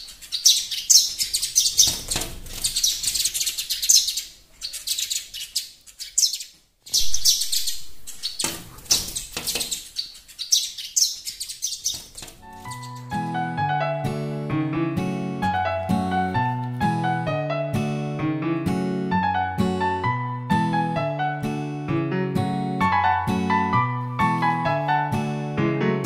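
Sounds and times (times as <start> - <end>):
sparrows chirping: 0.0 - 13.5.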